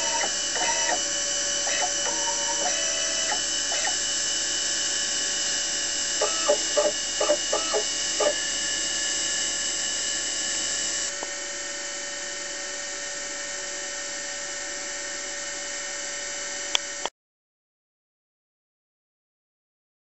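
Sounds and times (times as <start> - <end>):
milling spindle motor whine: 0.0 - 16.7
short pitched buzz: 6.2 - 8.5.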